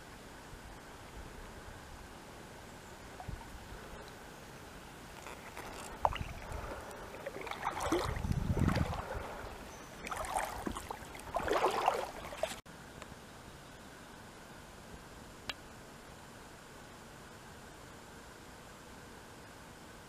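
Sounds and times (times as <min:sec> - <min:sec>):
steady faint hiss: 0:00.0 - 0:20.0
water splashing around boat: 0:03.0 - 0:04.2, 0:05.0 - 0:12.6.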